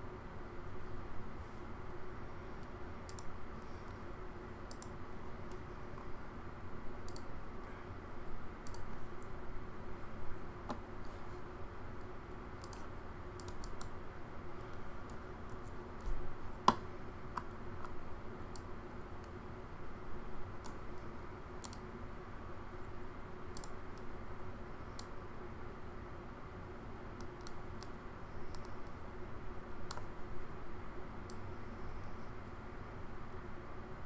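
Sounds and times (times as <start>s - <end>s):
steady low hum: 0.0s - 34.0s
computer mouse and keyboard clicks: 2.6s - 3.3s, 4.7s - 5.6s, 7.0s - 7.3s, 8.6s - 9.3s, 12.6s - 14.0s, 21.6s - 21.9s, 23.5s - 24.1s, 27.2s - 29.0s.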